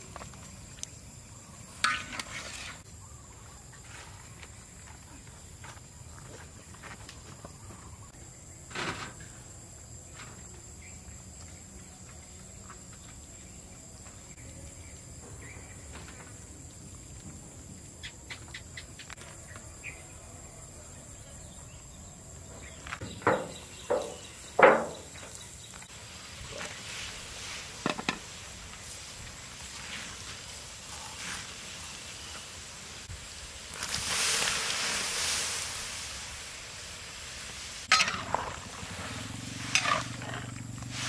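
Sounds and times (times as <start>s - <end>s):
insects chirping: 0.0s - 41.0s
loud sharp knocks: 23.2s - 25.1s.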